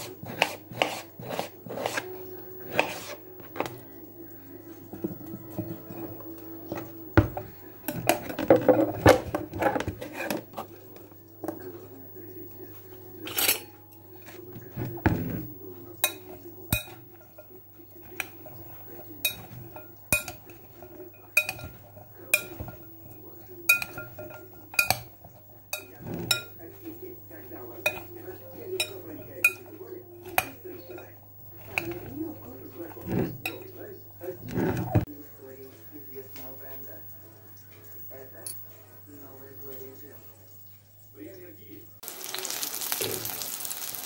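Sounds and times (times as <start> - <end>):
utensil clinking in glass bowl: 13.2 - 33.8.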